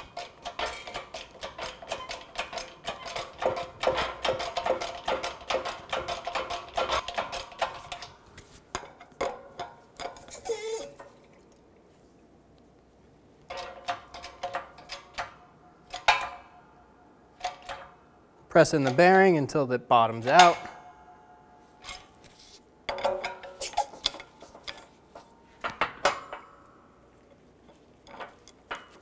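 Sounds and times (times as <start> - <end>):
hand pump metallic clicking: 0.0 - 8.2, 8.8 - 11.1, 13.5 - 16.5, 17.4 - 18.0, 22.9 - 26.4
short squeak: 10.2 - 11.0.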